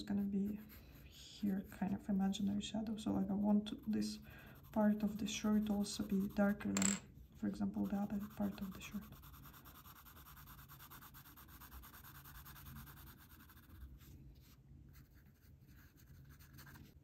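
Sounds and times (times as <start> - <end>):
pencil scratching on paper: 0.0 - 6.7, 7.6 - 17.0.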